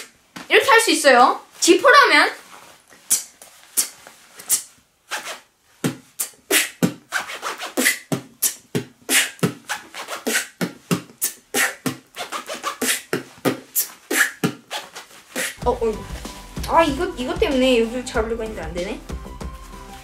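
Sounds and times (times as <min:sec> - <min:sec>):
mouth beatboxing: 0:03.0 - 0:15.8
zipper scratching: 0:03.1 - 0:15.6.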